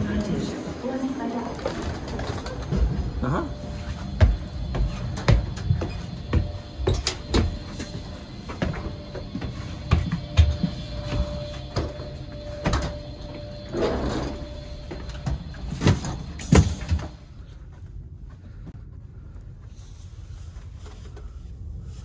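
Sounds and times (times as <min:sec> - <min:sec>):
footsteps on stairs: 0:02.4 - 0:13.7, 0:14.4 - 0:19.8.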